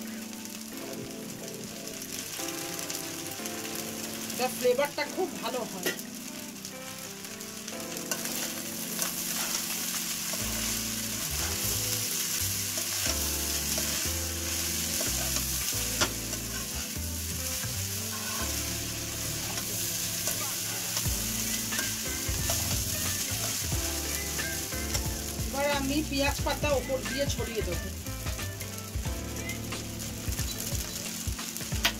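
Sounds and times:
rice sizzling in a wok: 0.0s - 31.9s
spatula scraping and knocking pan: 8.1s - 17.1s, 18.1s - 27.4s.

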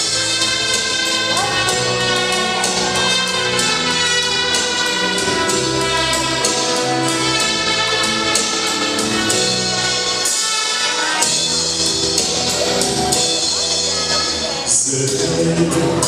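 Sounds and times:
instrumental backing music: 0.0s - 16.0s.

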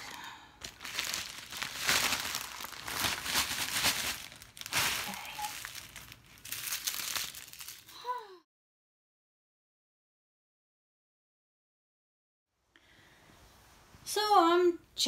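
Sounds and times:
plastic bags crinkling: 0.0s - 8.0s.

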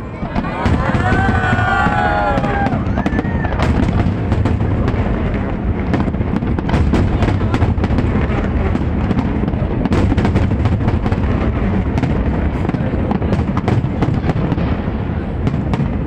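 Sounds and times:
fireworks cracking and popping: 0.0s - 16.0s.

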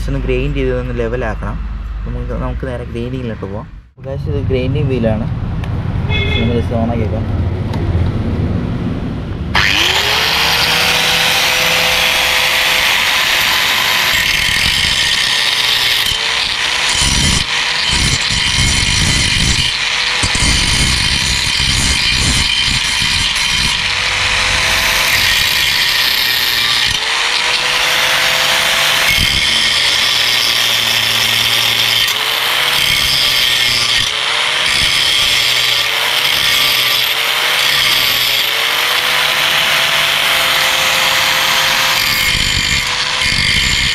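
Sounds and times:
angle grinder grinding metal: 9.6s - 43.9s.

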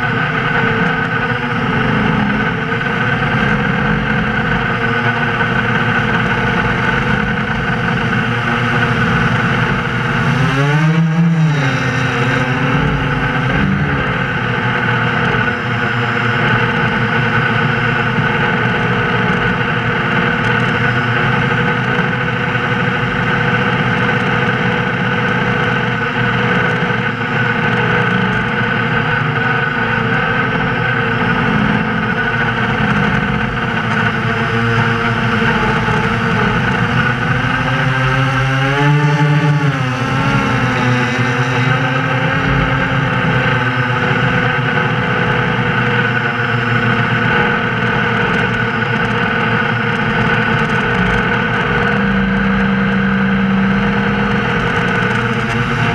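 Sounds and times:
drone motors whining: 0.0s - 55.9s.

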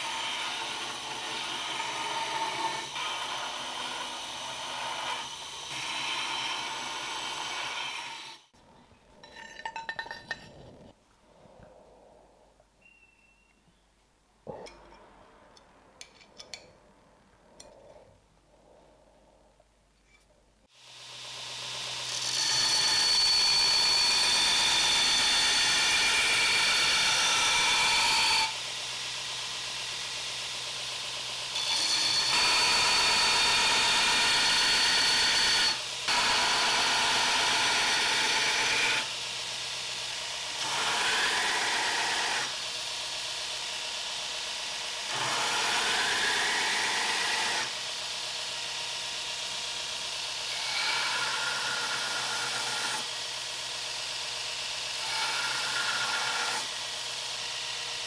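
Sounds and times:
belt grinder grinding steel blade: 31.2s - 42.7s, 54.8s - 58.0s.

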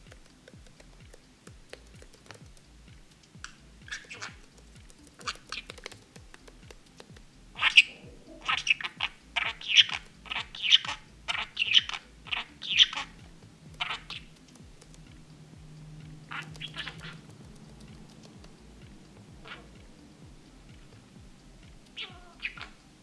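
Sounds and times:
budgerigar chirping: 3.4s - 5.9s, 7.5s - 15.2s, 16.2s - 17.4s, 18.8s - 19.9s, 21.9s - 22.9s.

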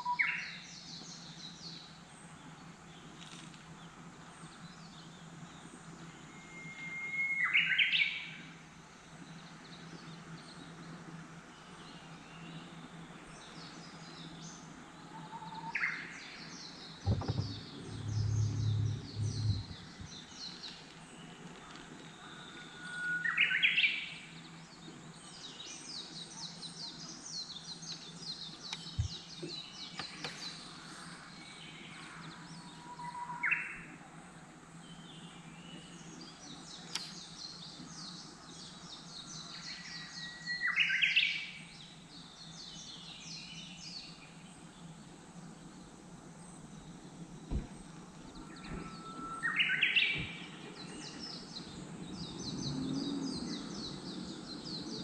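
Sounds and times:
bush warbler whistling song: 0.0s - 3.1s, 3.8s - 21.5s, 22.1s - 34.0s, 34.8s - 55.0s
small birds chirping: 0.0s - 55.0s
low thump and rumble: 17.0s - 20.5s, 47.4s - 49.0s.

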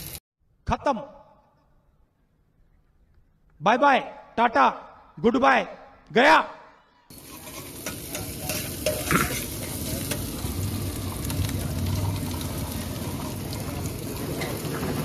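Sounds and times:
vegetables sizzling in a wok: 0.0s - 0.2s, 7.1s - 15.0s
metal spatula scraping a pan: 7.1s - 10.3s.

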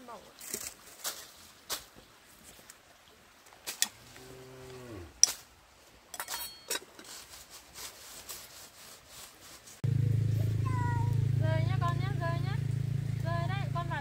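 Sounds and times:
cow mooing: 4.0s - 5.2s.

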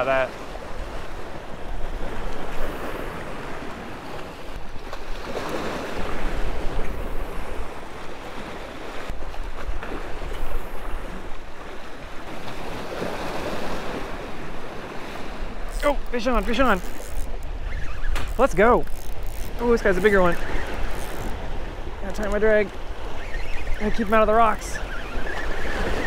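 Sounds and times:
waves breaking against rocks: 0.0s - 26.0s
wind buffeting microphone: 9.1s - 26.0s.

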